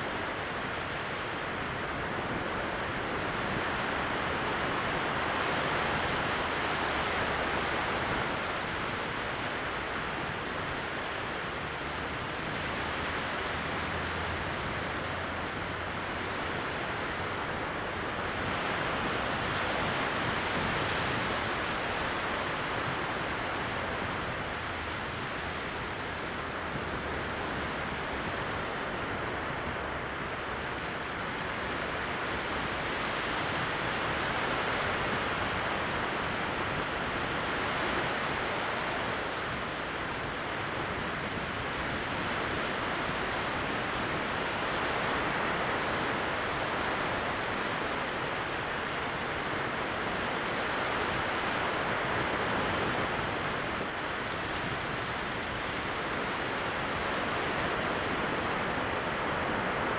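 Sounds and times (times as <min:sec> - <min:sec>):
small waves breaking: 0:00.0 - 0:59.9.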